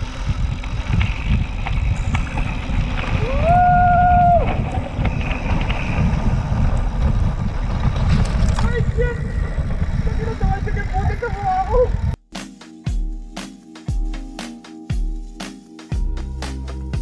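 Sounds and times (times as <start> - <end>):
bike tyres rolling on dirt: 0.0 - 12.2
wind buffeting microphone: 0.0 - 12.2.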